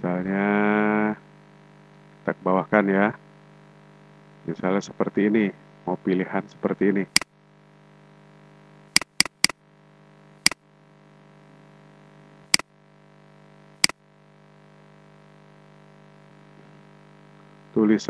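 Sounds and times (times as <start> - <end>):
low electrical hum: 0.0 - 18.0
computer mouse clicking: 9.0 - 9.6.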